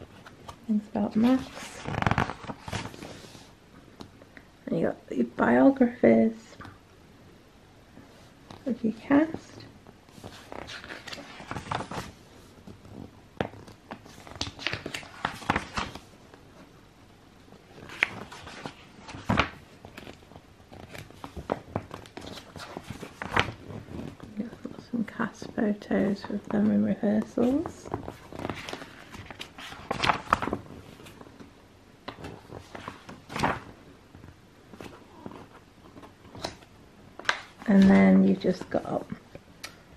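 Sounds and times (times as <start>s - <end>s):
paper pages rustling: 0.1s - 3.5s, 8.4s - 16.7s, 17.7s - 24.8s, 26.2s - 31.5s, 32.1s - 38.7s.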